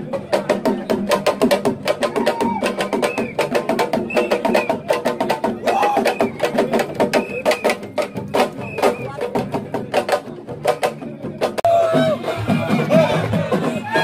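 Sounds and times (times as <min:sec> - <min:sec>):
voices singing: 0:11.5 - 0:14.0.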